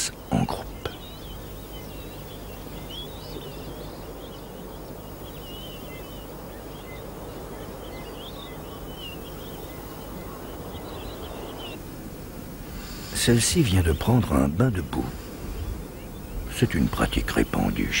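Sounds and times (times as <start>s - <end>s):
birds chirping: 0.0s - 18.0s
low background noise: 0.0s - 18.0s.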